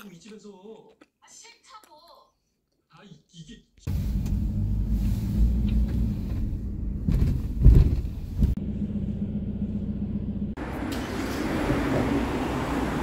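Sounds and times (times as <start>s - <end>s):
moving vehicle rumble: 3.9s - 13.0s.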